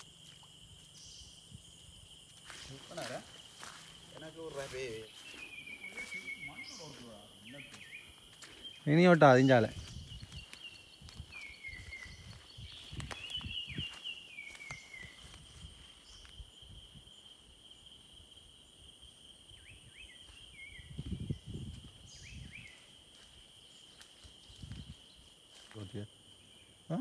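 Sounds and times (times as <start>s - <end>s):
high-pitched insect drone: 0.0s - 27.0s
falling whistled bird calls: 4.4s - 16.3s.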